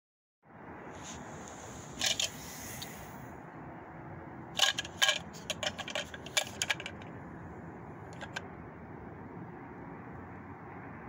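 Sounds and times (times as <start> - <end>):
plastic valve clicking and clattering: 2.0 - 2.3, 4.6 - 7.1, 8.1 - 8.4.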